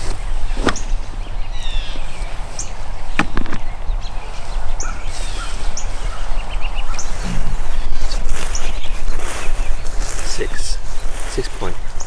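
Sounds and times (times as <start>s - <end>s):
small birds chirping: 0.0s - 12.0s
steady low rumble: 0.2s - 12.0s
sharp knocks: 3.2s - 3.7s.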